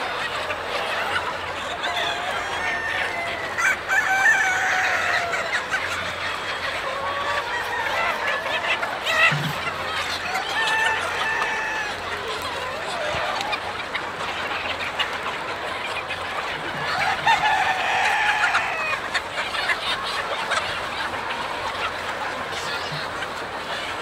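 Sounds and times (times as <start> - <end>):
roosters crowing: 0.0 - 14.3, 16.3 - 23.0
chickens clucking and squawking: 0.0 - 24.0.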